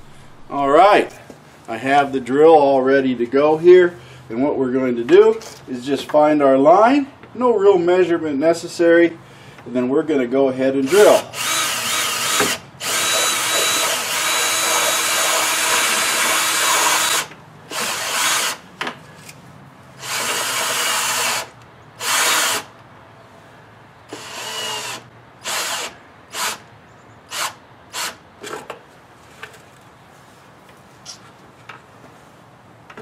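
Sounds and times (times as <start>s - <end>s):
cordless drill boring: 10.8s - 18.6s, 20.0s - 22.7s, 24.1s - 26.6s.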